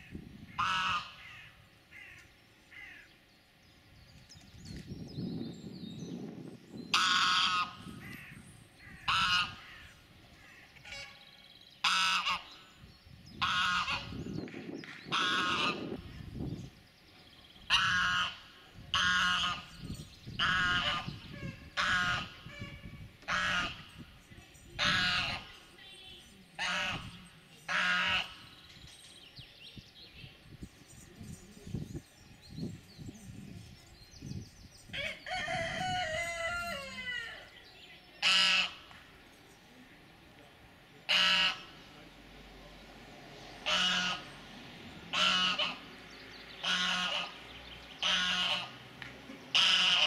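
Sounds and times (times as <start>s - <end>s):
goose honking: 0.5s - 1.5s, 6.9s - 7.9s, 9.0s - 9.9s, 10.8s - 11.2s, 11.8s - 12.6s, 13.4s - 14.2s, 15.1s - 16.0s, 17.7s - 19.7s, 20.4s - 23.9s, 24.8s - 25.6s, 26.6s - 28.5s, 38.2s - 38.9s, 41.1s - 41.7s, 43.6s - 44.3s, 45.1s - 45.9s, 46.6s - 47.4s, 48.0s - 48.8s, 49.5s - 50.0s.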